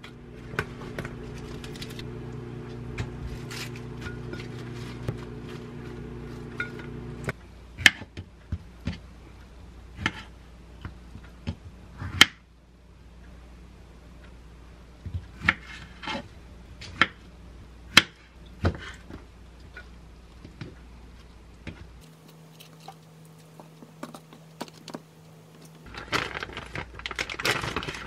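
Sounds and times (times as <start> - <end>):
plastic pouch rustling: 22.0 - 28.0.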